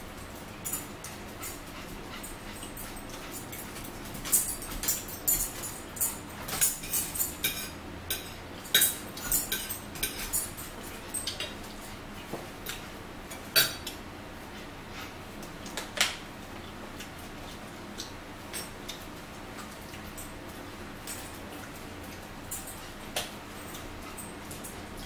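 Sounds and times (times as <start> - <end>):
forks clinking on plates: 0.6 - 1.6, 2.2 - 12.0, 12.6 - 14.0, 18.0 - 19.0, 21.0 - 25.0.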